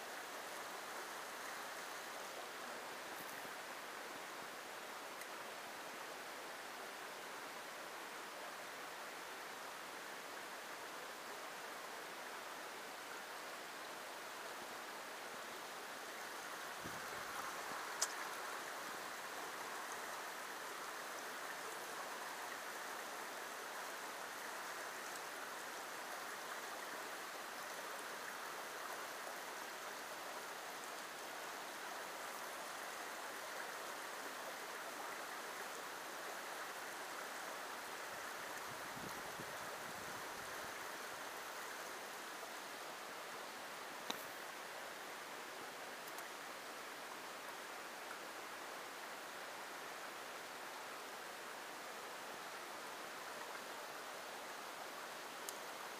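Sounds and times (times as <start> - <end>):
creek water running over rocks: 0.0 - 55.9.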